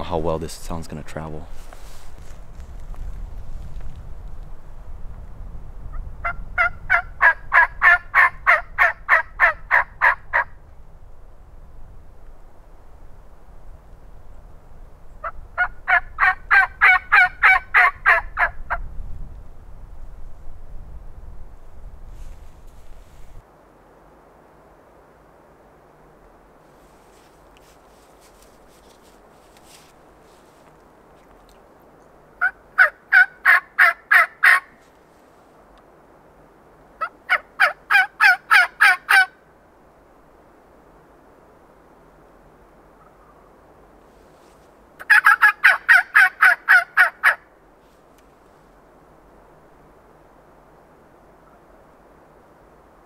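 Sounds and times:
low wind noise: 0.0 - 53.0
turkey call yelps: 6.2 - 10.5, 15.2 - 18.8, 32.4 - 34.7, 37.0 - 39.4, 45.0 - 47.4.

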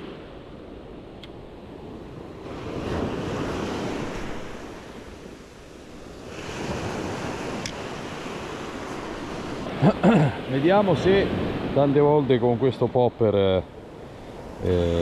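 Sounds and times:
wind buffeting microphone: 0.0 - 9.8
small waves breaking on beach: 0.0 - 15.0.

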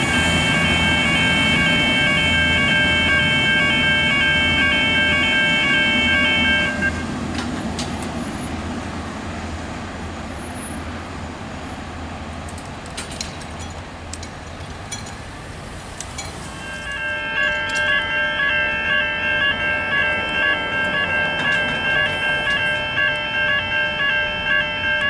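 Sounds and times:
electronic warning chime: 0.0 - 7.0, 16.8 - 25.0
diesel train engine drone: 0.0 - 25.0
train wheel noise: 0.0 - 25.0.

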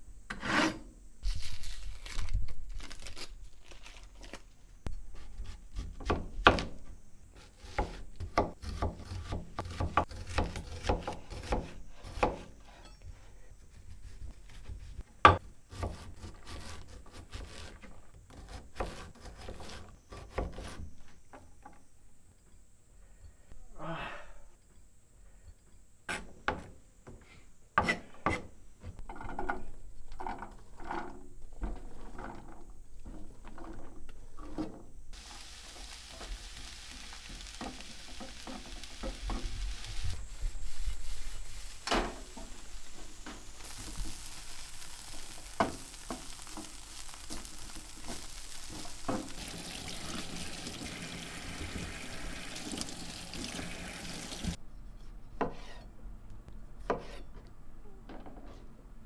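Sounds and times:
onion sizzling in frying pan: 35.2 - 54.6.

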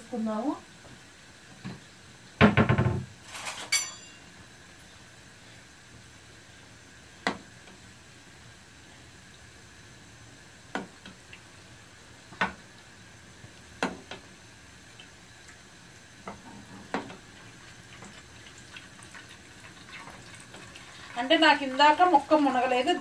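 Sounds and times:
ladle clinking against pans: 3.6 - 4.3
chicken frying hiss: 4.3 - 23.0.

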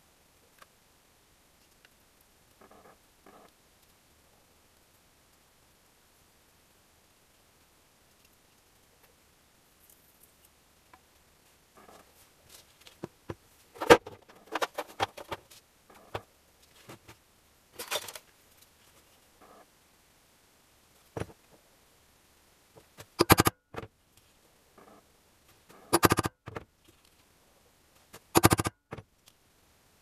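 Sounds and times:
paper and tools rustling: 11.8 - 17.2, 17.8 - 19.2.

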